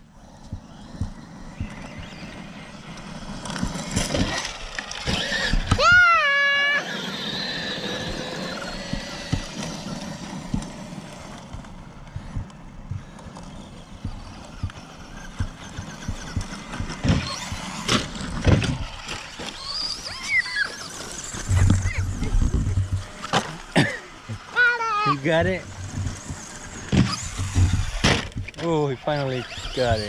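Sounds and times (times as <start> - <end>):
rc truck motor whine: 0.0 - 30.0
loud thumps: 14.0 - 19.6, 21.4 - 24.5, 25.6 - 28.6.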